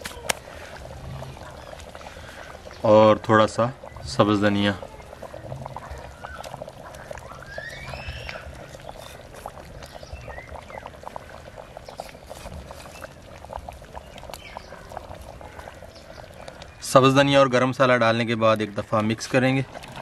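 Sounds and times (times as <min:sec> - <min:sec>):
broth bubbling and popping: 0:00.0 - 0:20.0.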